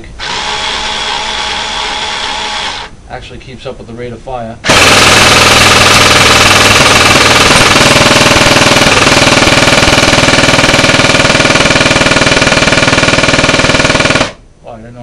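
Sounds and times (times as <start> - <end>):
drill motor spinning: 0.0 - 3.0, 4.6 - 14.3
airsoft minigun firing full-auto: 4.7 - 14.4.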